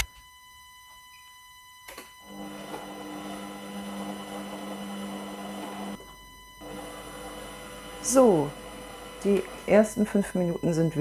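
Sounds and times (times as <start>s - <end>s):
kitchen machine humming: 2.3s - 11.0s.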